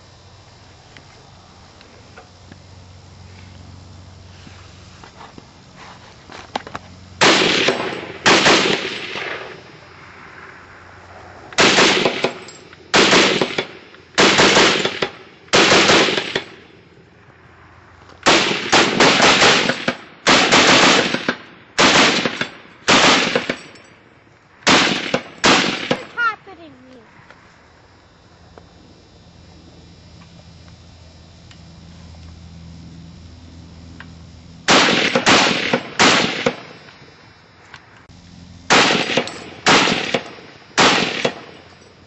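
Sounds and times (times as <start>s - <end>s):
machine gun firing: 7.2s - 9.6s, 11.6s - 16.6s, 18.2s - 23.8s, 24.6s - 26.2s, 34.7s - 36.8s, 38.7s - 41.7s.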